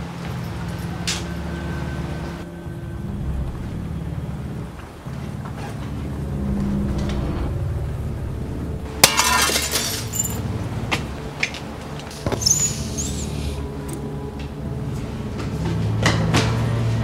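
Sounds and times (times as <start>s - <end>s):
low steady drone: 0.0s - 17.0s
glass window shattering: 9.0s - 10.4s.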